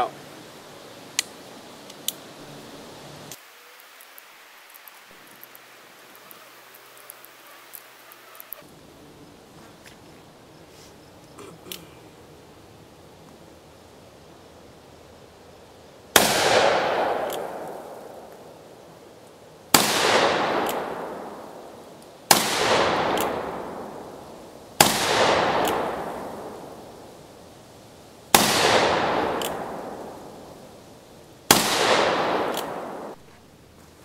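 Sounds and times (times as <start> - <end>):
revolver gunshots: 16.1 - 18.3, 19.7 - 21.6, 22.3 - 24.2, 24.8 - 26.6, 28.3 - 30.3, 31.5 - 33.2
gunshot echo: 16.2 - 18.3, 19.7 - 21.5, 22.3 - 24.1, 24.8 - 26.6, 28.3 - 30.2, 31.5 - 33.2.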